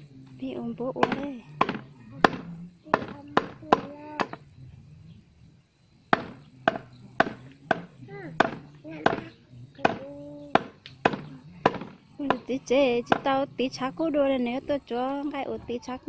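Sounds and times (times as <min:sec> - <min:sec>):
cleaver chopping meat on wood: 0:01.0 - 0:04.4, 0:06.1 - 0:12.5.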